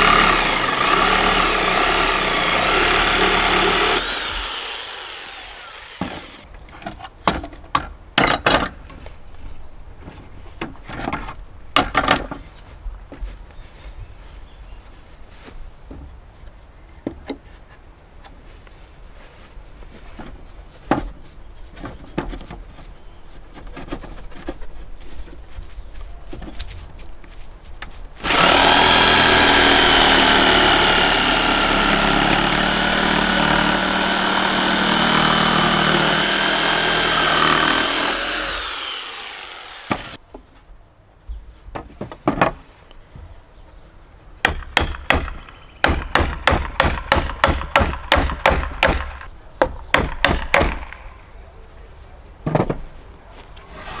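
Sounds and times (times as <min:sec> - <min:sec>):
jigsaw cutting wood: 0:00.0 - 0:06.5, 0:28.2 - 0:40.2
hammer tapping wood: 0:44.5 - 0:51.0.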